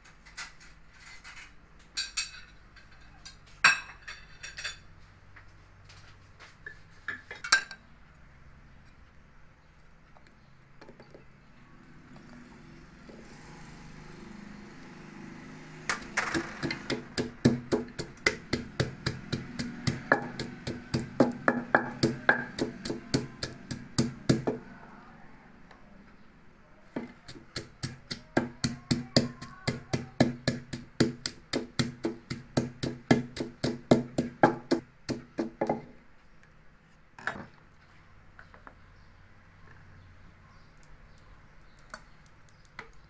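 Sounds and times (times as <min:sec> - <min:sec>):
wooden pestle pounding in mortar: 0:15.9 - 0:24.6, 0:27.0 - 0:35.9.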